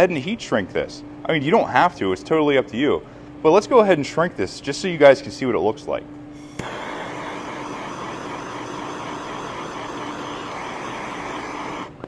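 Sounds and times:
gas torch flame hissing: 6.4s - 12.0s.

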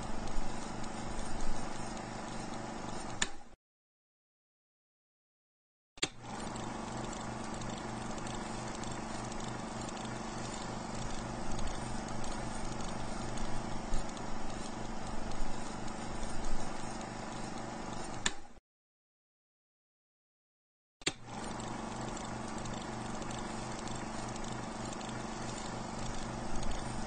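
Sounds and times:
sharp click: 3.1s - 3.5s, 17.5s - 18.5s, 21.0s - 21.2s
film projector clattering: 6.0s - 18.4s, 21.1s - 27.0s.

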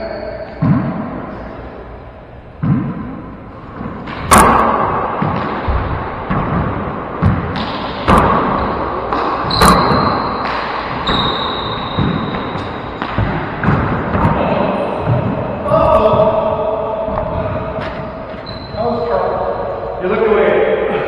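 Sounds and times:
handball smacking off walls: 4.0s - 16.3s
sneakers squeaking on hardwood: 5.2s - 16.3s, 17.1s - 19.2s.

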